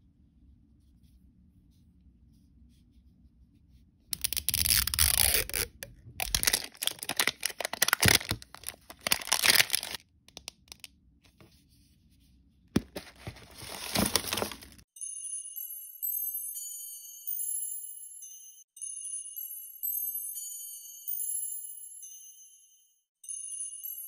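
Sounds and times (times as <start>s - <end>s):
plastic film tearing and crinkling: 4.2s - 10.0s, 12.8s - 14.8s.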